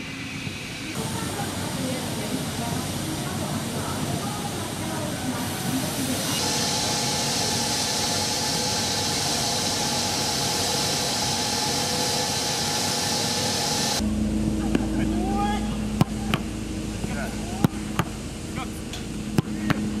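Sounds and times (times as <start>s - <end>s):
high-pitched hiss: 0.0s - 14.0s
faint steady tones: 0.0s - 20.0s
low steady hum: 0.0s - 20.0s.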